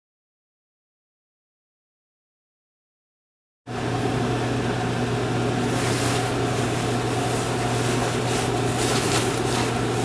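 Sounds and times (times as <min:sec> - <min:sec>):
ventilation fan humming: 0:03.7 - 0:10.0.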